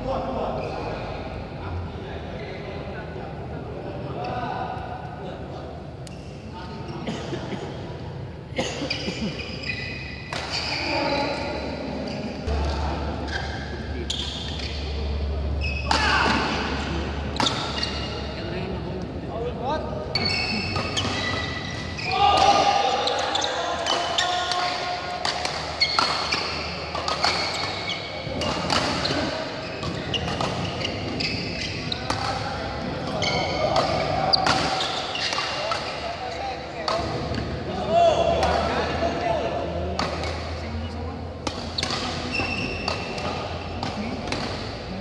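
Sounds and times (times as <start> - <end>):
shoes squeaking on court: 8.8 - 16.2, 17.3 - 18.5, 20.1 - 22.2, 22.9 - 37.5, 40.0 - 45.0
racket hitting shuttlecock: 23.8 - 32.4, 33.0 - 36.0, 41.4 - 44.8.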